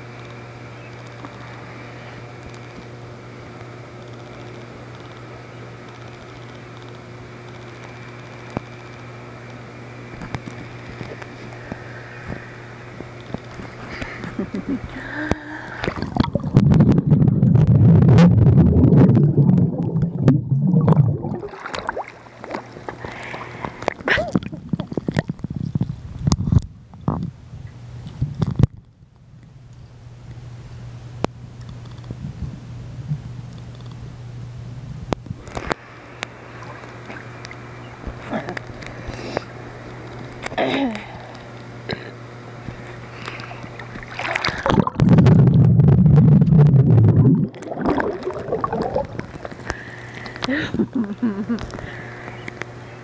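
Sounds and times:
steady low hum: 0:00.0 - 0:53.0
underwater bubbles churning: 0:15.6 - 0:25.5, 0:43.4 - 0:49.8.

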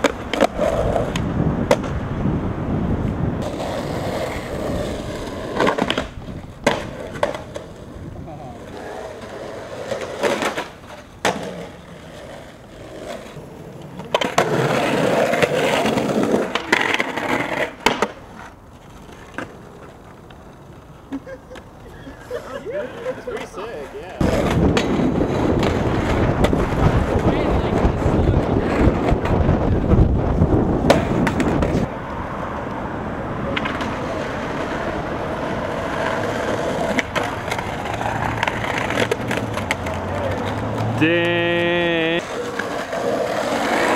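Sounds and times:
skateboard clacking on ground: 0:00.0 - 0:02.0, 0:03.0 - 0:30.0, 0:30.8 - 0:32.8, 0:33.4 - 0:43.9
skateboard wheels rolling on concrete: 0:00.0 - 0:43.9
wind buffeting microphone: 0:00.2 - 0:08.6, 0:24.2 - 0:38.8.

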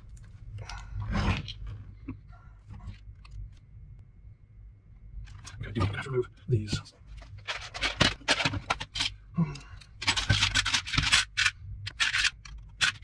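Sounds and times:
hands rummaging among tools: 0:07.2 - 0:09.2, 0:09.8 - 0:13.0.

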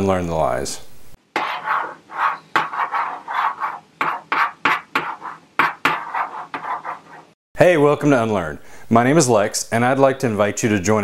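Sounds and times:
chalk scratching on chalkboard: 0:01.4 - 0:07.4.

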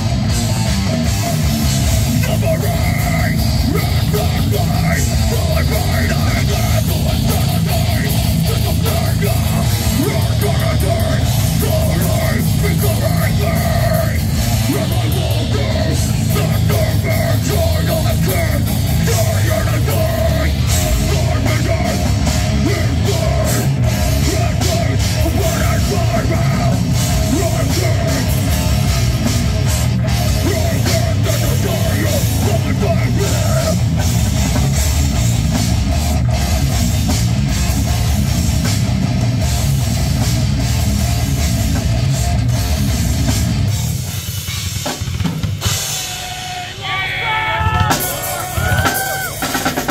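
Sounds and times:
drum kit: 0:00.0 - 0:49.9
electric guitars: 0:00.0 - 0:49.9
person singing into microphone: 0:02.0 - 0:29.0, 0:30.3 - 0:33.8.

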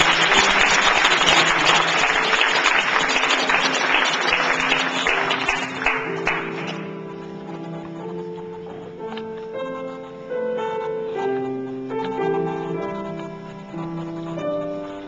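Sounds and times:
audience applauding: 0:00.0 - 0:06.9
piano playing: 0:00.0 - 0:15.0.

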